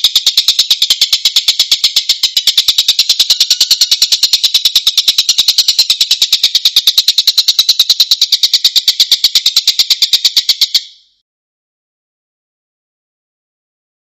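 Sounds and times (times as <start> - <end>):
bird harsh rattling call: 0.0 - 11.1.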